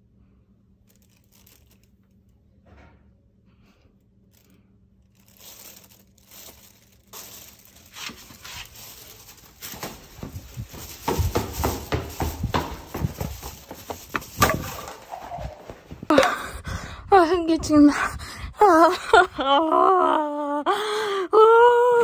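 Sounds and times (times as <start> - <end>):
plastic garbage bags rustling: 0.9 - 1.9, 5.1 - 16.2
running footsteps: 7.9 - 17.0.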